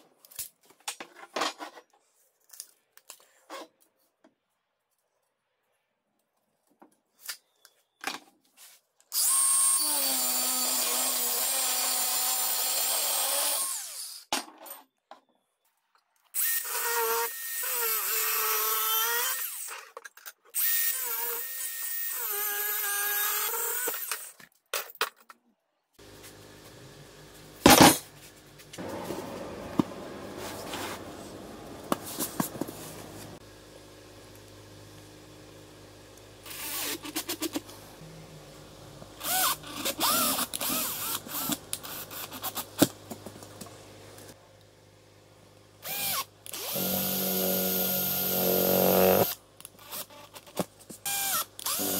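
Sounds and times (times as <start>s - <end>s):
angle grinder cutting steel rod: 9.2s - 14.3s, 45.8s - 49.4s.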